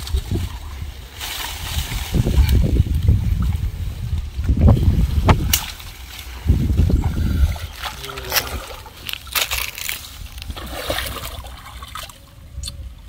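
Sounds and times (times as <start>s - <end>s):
low buffeting rumble: 0.0s - 13.0s
water sloshing and splashing: 4.8s - 12.3s.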